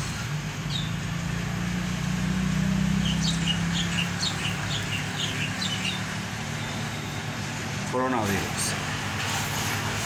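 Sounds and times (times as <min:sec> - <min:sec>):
small bird chirping: 0:00.6 - 0:01.1, 0:02.8 - 0:06.8.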